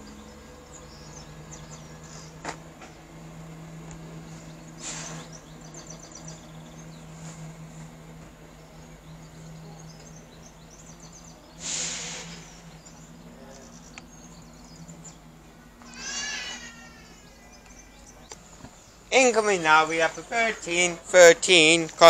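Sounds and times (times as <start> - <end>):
birds chirping: 0.0 - 22.0
diesel train engine drone: 0.0 - 22.0
rush of hiss: 4.8 - 5.3, 11.6 - 12.7.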